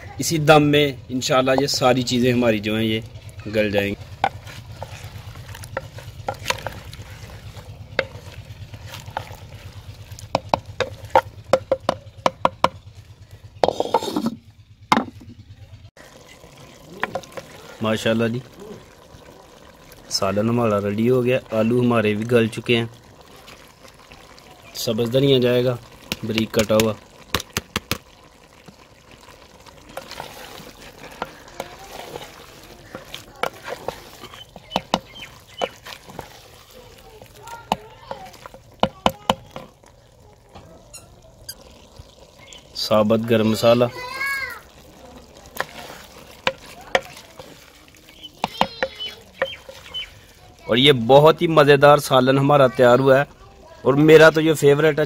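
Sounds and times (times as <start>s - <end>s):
curry simmering and sizzling: 0.0s - 55.0s
low steady hum: 0.9s - 20.1s
wooden spoon knocking clay pot: 3.4s - 12.8s, 13.6s - 15.4s, 17.0s - 17.6s, 26.0s - 28.1s, 29.9s - 39.8s, 45.4s - 50.1s.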